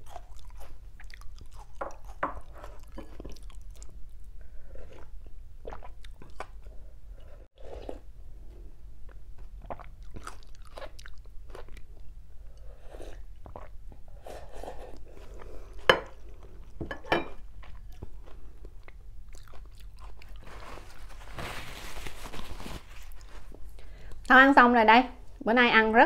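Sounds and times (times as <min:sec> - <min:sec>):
person sipping and gulping soup: 0:04.3 - 0:08.1, 0:09.1 - 0:16.5
paper napkin rustling: 0:20.4 - 0:23.6.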